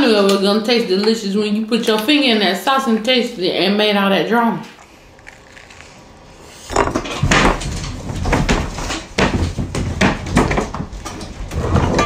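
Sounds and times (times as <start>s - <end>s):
rapid knocks and bumps: 6.7s - 12.0s.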